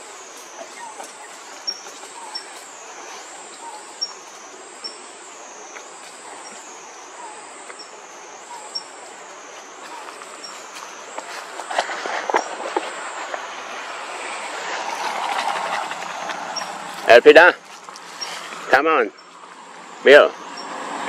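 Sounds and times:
wavering insect drone: 0:00.0 - 0:17.4
rustling and cracking branches: 0:09.3 - 0:18.7.

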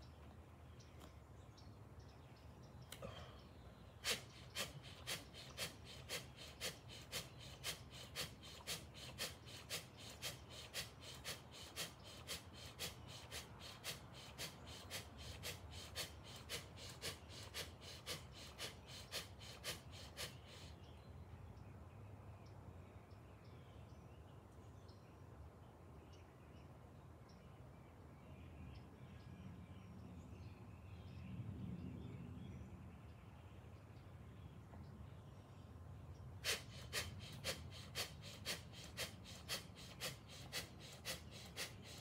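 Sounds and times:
man breathing rapidly and forcefully: 0:03.0 - 0:20.8, 0:36.4 - 0:42.0.

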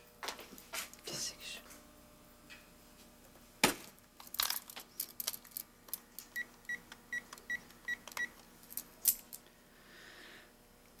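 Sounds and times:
phone keypad beeps: 0:06.4 - 0:08.3.

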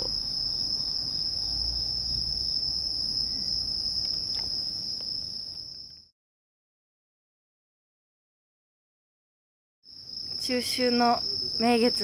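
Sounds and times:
crickets trilling: 0:00.0 - 0:06.1, 0:09.8 - 0:12.0.

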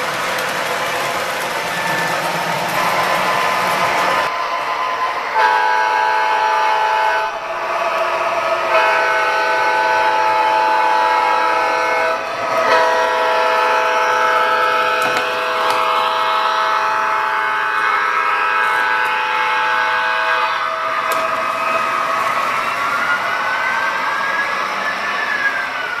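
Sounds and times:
multi-chime locomotive horn blasts: 0:04.2 - 0:07.4, 0:08.6 - 0:21.2.

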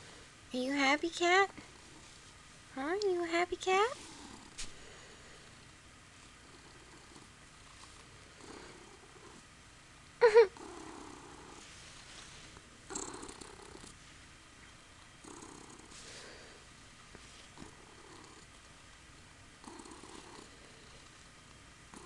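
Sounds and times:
kitten purring: 0:03.8 - 0:04.8, 0:06.4 - 0:09.5, 0:10.2 - 0:14.0, 0:15.2 - 0:18.7, 0:19.6 - 0:21.3.

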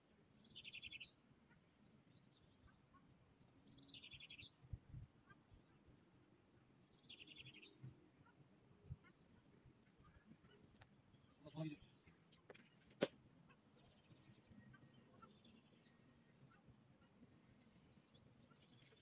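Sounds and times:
songbird trilling: 0:00.4 - 0:01.2.

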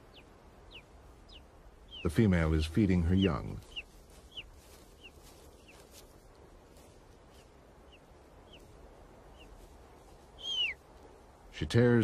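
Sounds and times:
eagle chicks begging cheeps: 0:00.0 - 0:05.8, 0:10.4 - 0:10.8.

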